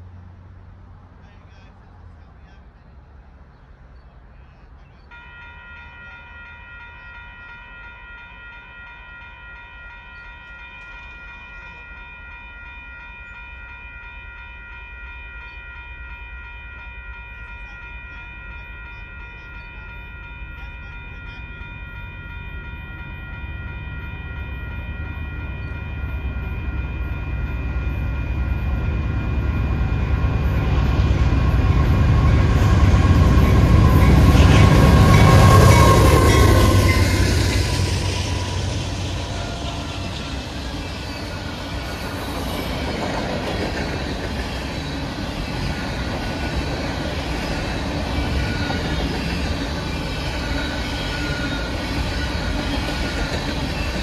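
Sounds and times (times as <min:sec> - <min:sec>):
freight train rumbling: 0:00.0 - 0:54.0
chord of high tones: 0:05.1 - 0:43.7.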